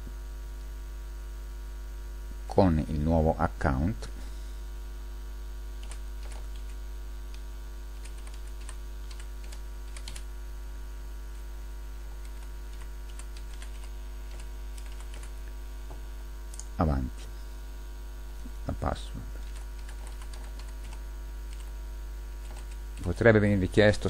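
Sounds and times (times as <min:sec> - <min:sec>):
low mains hum: 0:00.0 - 0:24.0
keyboard keys clicking: 0:05.8 - 0:07.4, 0:08.0 - 0:10.2, 0:12.2 - 0:15.3, 0:19.4 - 0:21.7, 0:22.4 - 0:23.2.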